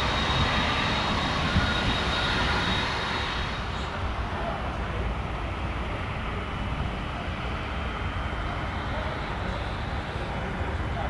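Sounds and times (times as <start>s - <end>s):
jet engine rumble: 0.0s - 11.0s.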